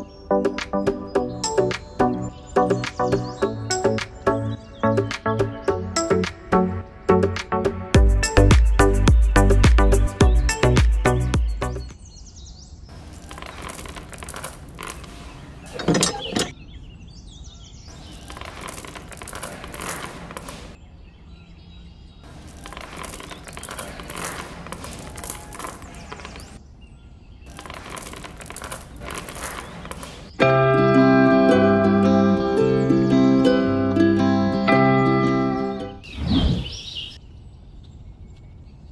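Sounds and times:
pebbles poured and clattering: 13.1 - 15.4, 18.0 - 20.8, 22.3 - 26.5, 27.5 - 30.2.

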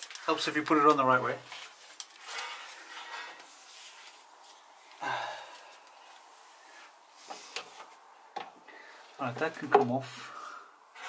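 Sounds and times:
clothing rustling: 0.0 - 8.0.

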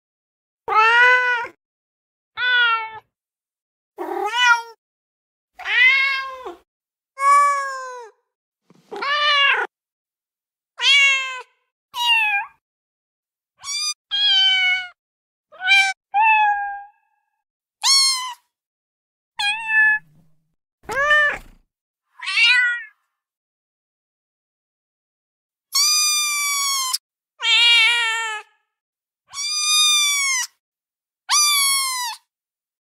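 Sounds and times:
cat meows: 0.7 - 1.6, 2.4 - 3.1, 4.0 - 4.8, 5.6 - 6.6, 7.2 - 8.2, 8.9 - 9.7, 10.8 - 12.6, 13.6 - 17.2, 17.8 - 18.4, 19.4 - 20.1, 20.9 - 23.0, 25.8 - 28.7, 29.3 - 30.6, 31.3 - 32.2.

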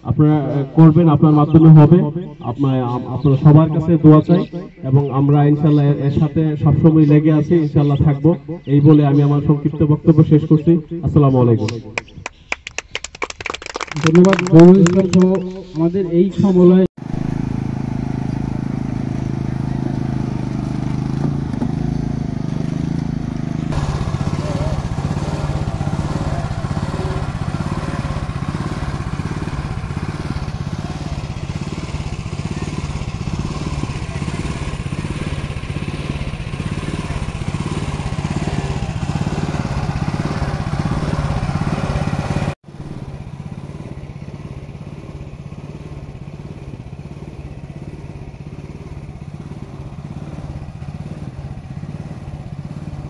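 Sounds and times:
small engine running: 17.0 - 53.0.

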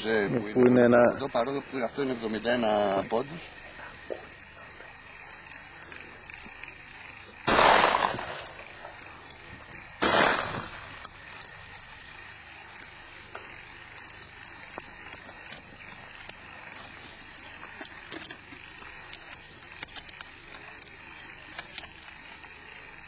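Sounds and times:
shotgun shots: 7.5 - 8.8, 10.0 - 11.0.

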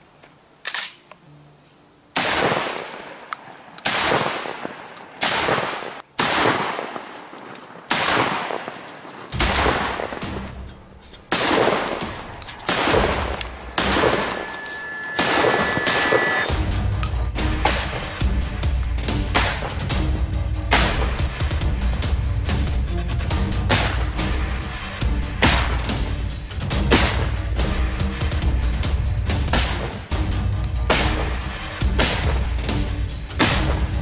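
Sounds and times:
shotgun shots: 2.2 - 3.2, 3.8 - 10.5, 11.3 - 14.4.

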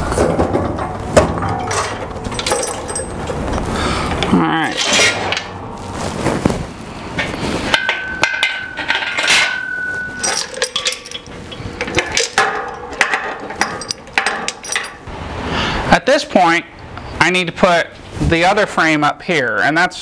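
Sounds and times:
metal tools clanking: 0.2 - 3.6, 4.7 - 5.5, 7.2 - 15.1
steady high tone: 7.7 - 10.4.

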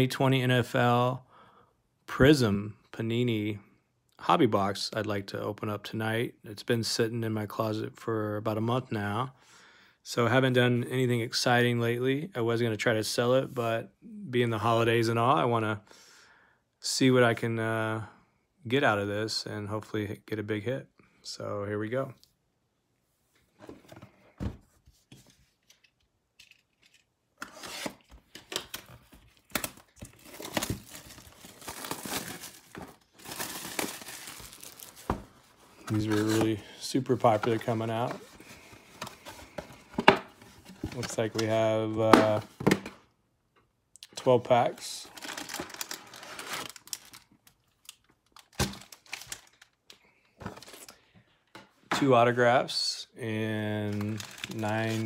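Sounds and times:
plastic wrap tearing and crinkling: 29.3 - 35.4, 45.1 - 49.8, 53.8 - 55.0.

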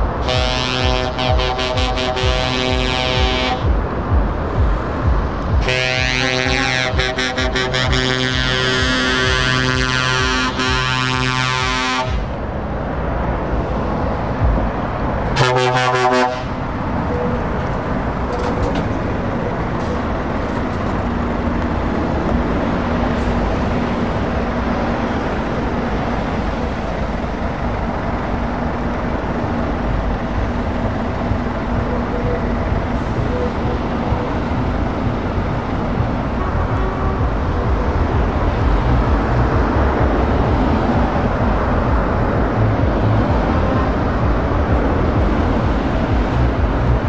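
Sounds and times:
lorry diesel engine driving past: 0.0 - 47.0
truck air horn blasts: 0.1 - 3.8, 5.5 - 12.4, 15.4 - 16.7.

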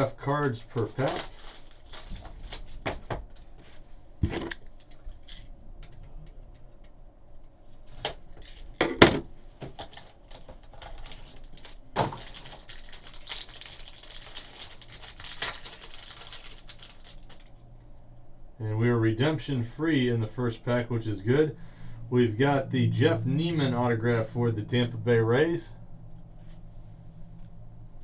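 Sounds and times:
foil pack being torn open: 0.4 - 2.8, 9.8 - 17.6.

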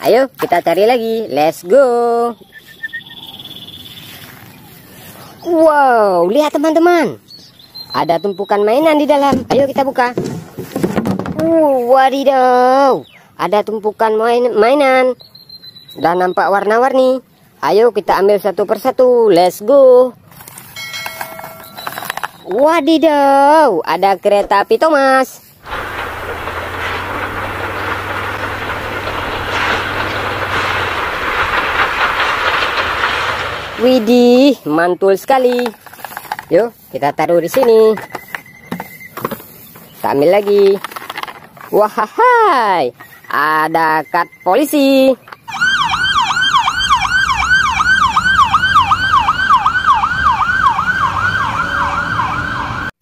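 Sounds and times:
steam locomotive running: 25.5 - 34.7
low rumble: 25.6 - 34.2
police siren yelping: 45.5 - 52.9.

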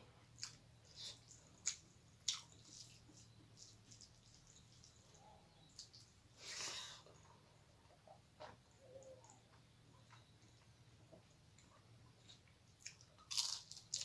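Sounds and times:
faint steady hum: 0.0 - 14.0
chewing clicks and smacks: 0.4 - 0.6, 1.2 - 5.0, 11.5 - 14.0
fingers squishing food: 0.4 - 6.2.

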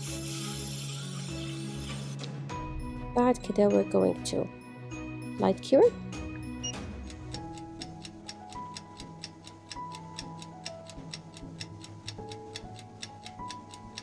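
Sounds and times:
soft background music: 0.0 - 14.0
stopwatch ticking: 6.6 - 14.0.

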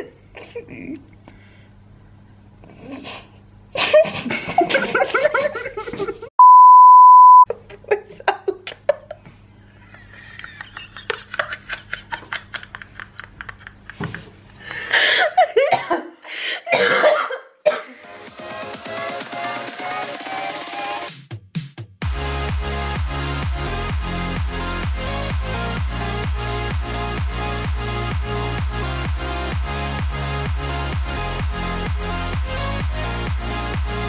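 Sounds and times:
people laughing: 3.8 - 6.3, 9.8 - 15.7
censor bleep: 6.4 - 7.5
people coughing: 15.6 - 16.1, 16.7 - 18.0.

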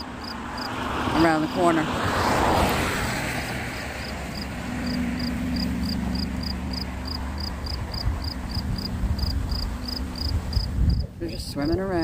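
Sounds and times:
insect chirping: 0.0 - 0.8, 4.0 - 11.0
low engine drone: 2.9 - 12.0
low rumble: 3.4 - 12.0.

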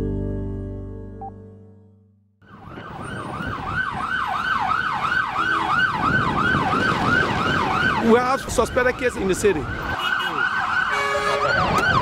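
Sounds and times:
ambulance siren yelping: 2.4 - 12.0
street traffic: 2.4 - 12.0.

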